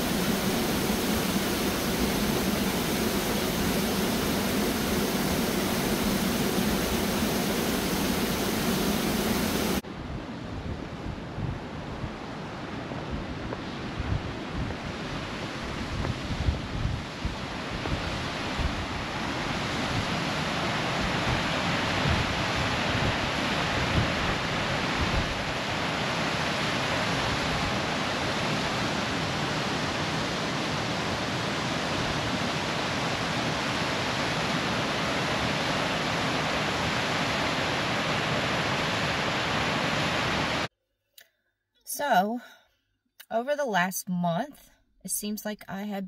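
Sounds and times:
waterfall rushing: 0.0s - 9.8s
wind buffeting microphone: 0.0s - 25.6s.

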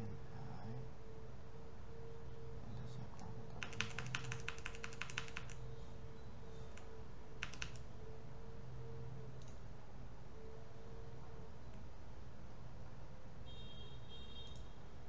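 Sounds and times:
computer keyboard typing: 3.2s - 5.7s, 6.7s - 7.9s.

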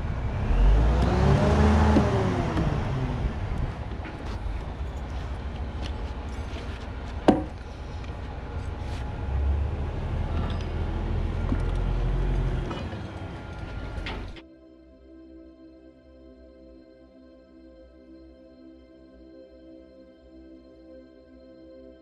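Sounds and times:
steady low rumble: 0.0s - 14.4s.

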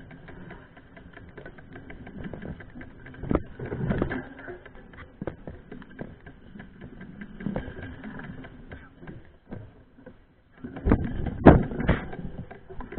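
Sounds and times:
irregular clicks: 0.0s - 12.9s
mountain bike rattling: 0.0s - 12.9s
loud thumps: 10.8s - 12.5s.

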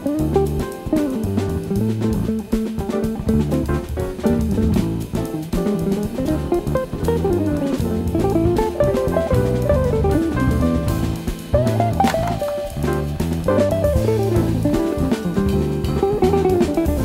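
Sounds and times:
bass: 0.0s - 17.0s
drum kit steady beat: 0.0s - 17.0s
guitar melody: 0.0s - 17.0s.

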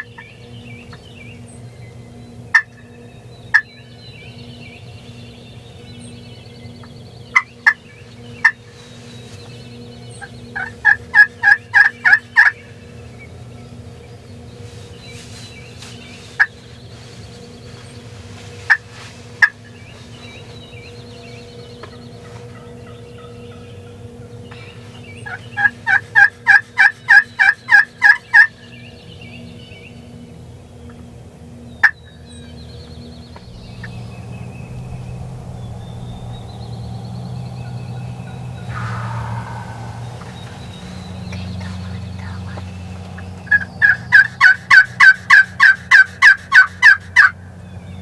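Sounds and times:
faint songbirds chattering: 0.0s - 48.0s
turkey yelping: 43.5s - 47.3s.

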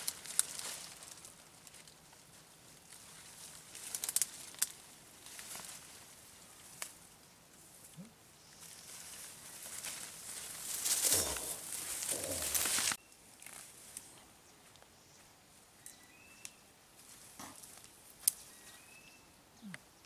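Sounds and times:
twigs snapping: 0.0s - 2.2s, 2.9s - 5.8s, 6.7s - 7.0s, 10.7s - 14.1s, 17.6s - 18.4s
branches brushing and crackling: 0.0s - 7.9s, 8.5s - 14.8s, 16.4s - 18.9s
leaves rustling in brush: 0.0s - 7.9s, 8.5s - 14.1s.

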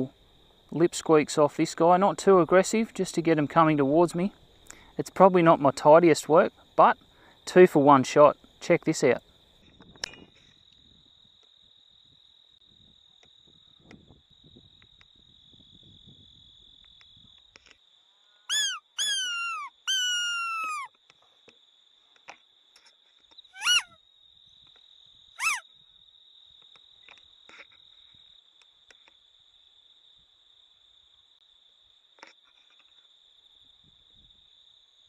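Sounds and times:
crickets droning: 0.0s - 35.0s
lip squeaks imitating prey: 18.5s - 20.9s, 23.6s - 24.0s, 25.4s - 25.6s.

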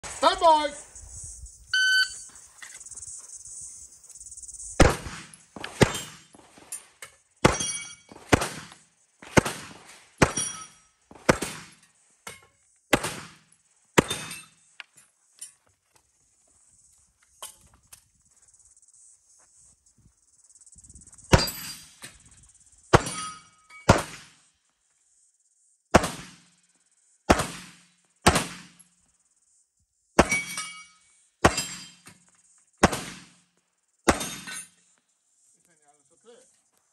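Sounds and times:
pistol shots: 4.8s - 6.3s, 7.4s - 11.8s, 12.9s - 14.5s, 22.9s - 24.4s, 25.9s - 26.5s, 27.3s - 28.8s, 32.8s - 33.4s, 34.1s - 34.6s.

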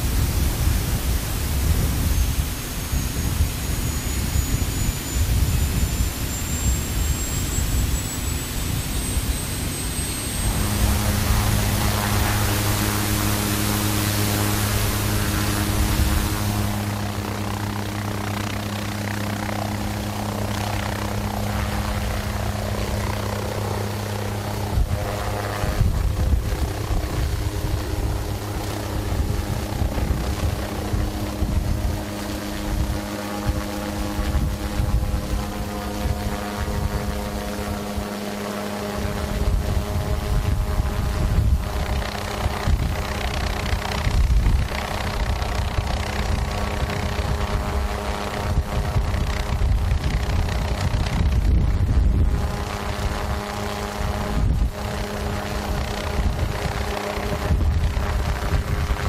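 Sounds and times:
helicopter engine and rotor: 0.0s - 59.0s
thin rising whine: 0.0s - 59.0s.

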